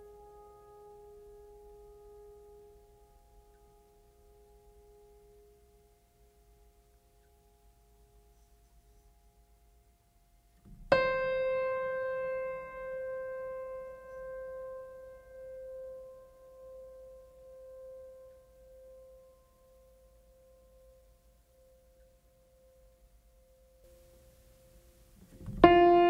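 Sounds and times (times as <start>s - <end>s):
piano-like keyboard note ringing: 25.5s - 26.0s.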